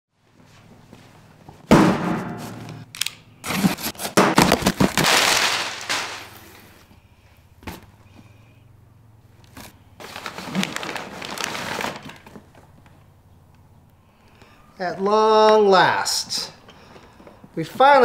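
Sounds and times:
packing paper rustling: 0:03.4 - 0:06.8, 0:09.5 - 0:13.0.

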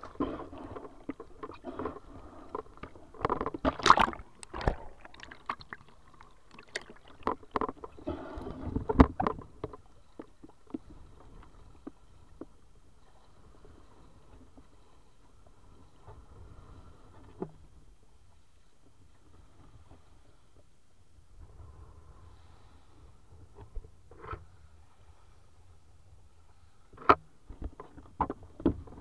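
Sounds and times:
water lapping: 0:00.0 - 0:08.0
water splashing around wading legs: 0:03.4 - 0:07.5.

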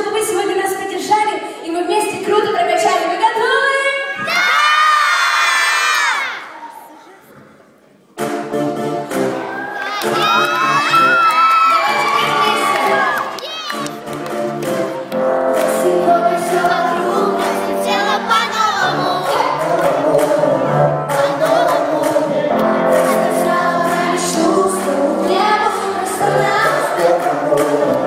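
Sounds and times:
pop backing track: 0:13.8 - 0:28.0
girls singing pop song: 0:15.5 - 0:28.0.

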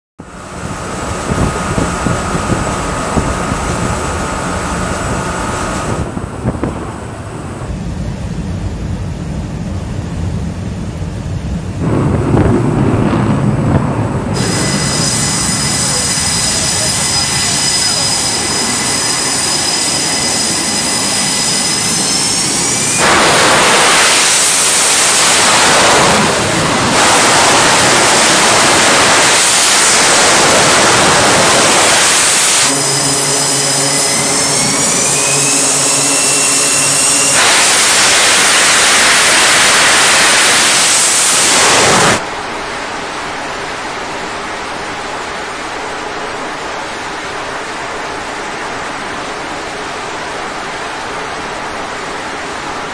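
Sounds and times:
jet engines spooling up: 0:00.2 - 0:42.3
rushing noise: 0:00.2 - 0:52.9.

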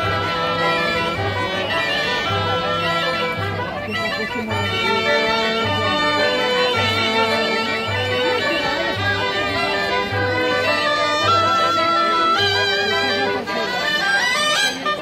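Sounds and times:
brass playing: 0:00.0 - 0:15.0
double bass beat: 0:00.0 - 0:15.0
reedy shawm melody: 0:00.0 - 0:15.0.

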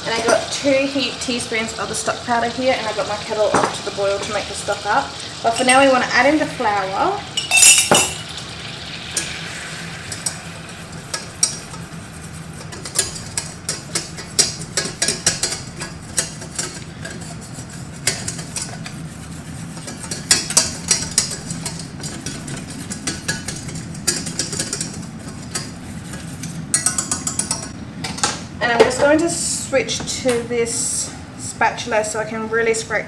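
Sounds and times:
steady low hum: 0:00.0 - 0:33.0
whisk clinking in saucepan: 0:12.6 - 0:27.7.

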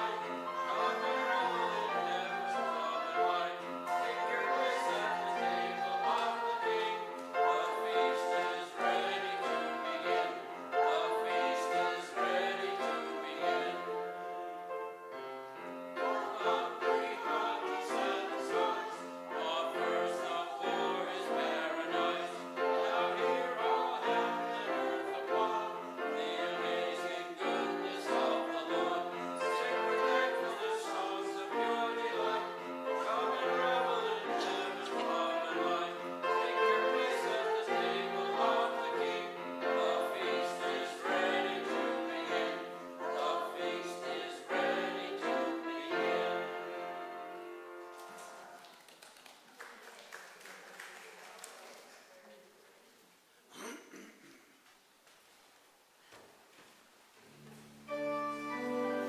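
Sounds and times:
choir singing: 0:00.0 - 0:48.6, 0:57.3 - 0:59.0
keyboard accompaniment: 0:57.3 - 0:59.0.

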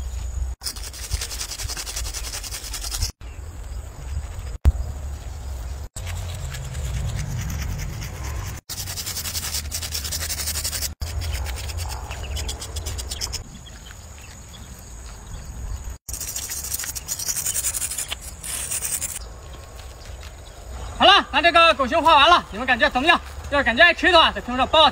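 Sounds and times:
paint rubbing on concrete: 0:00.6 - 0:03.2, 0:05.6 - 0:13.5, 0:16.0 - 0:20.0
low rumble: 0:04.7 - 0:08.7.

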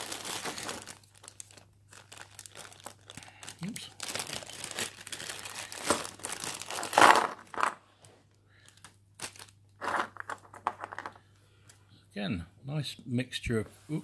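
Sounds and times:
plastic bag crinkling: 0:00.0 - 0:07.8, 0:08.6 - 0:11.2.

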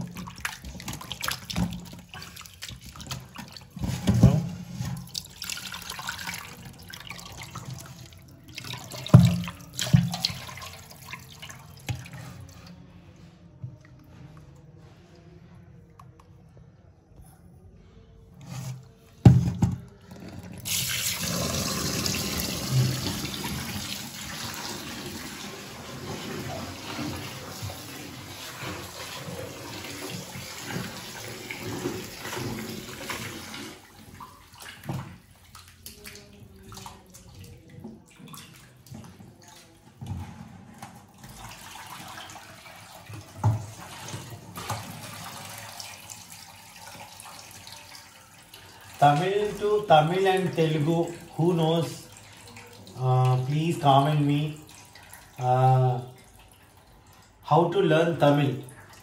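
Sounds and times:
tap water running into bowl: 0:00.0 - 0:12.3, 0:19.2 - 0:36.0.

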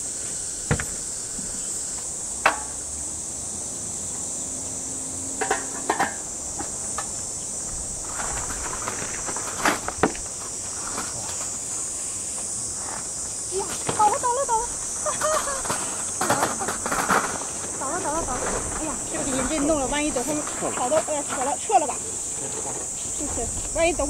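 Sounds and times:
insects buzzing: 0:00.0 - 0:24.0.

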